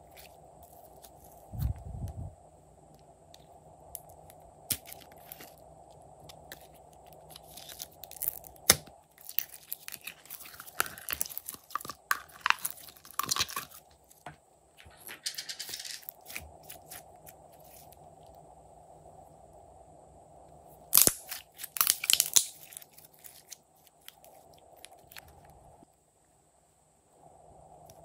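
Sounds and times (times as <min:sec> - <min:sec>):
slime crackling and popping: 0:06.2 - 0:14.0, 0:20.9 - 0:25.3.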